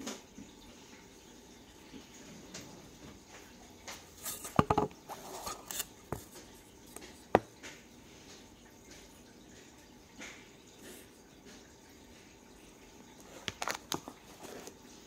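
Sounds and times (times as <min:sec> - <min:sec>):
light scrapes: 0:04.2 - 0:06.4.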